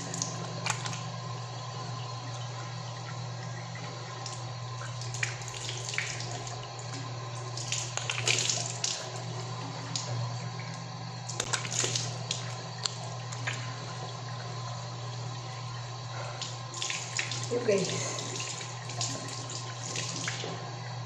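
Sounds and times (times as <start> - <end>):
water splashing: 7.3 - 10.1, 11.3 - 14.4.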